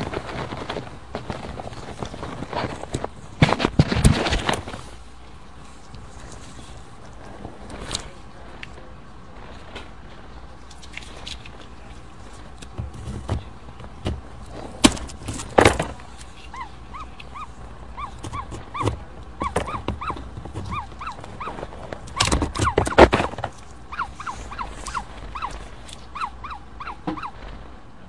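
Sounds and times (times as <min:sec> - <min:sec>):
chick peeping: 0:16.4 - 0:27.6.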